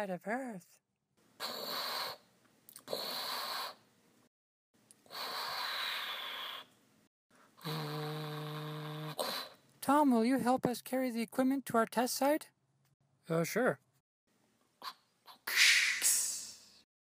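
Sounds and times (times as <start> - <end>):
breathy rushing hisses by mouth: 5.0 - 6.7, 15.5 - 16.7.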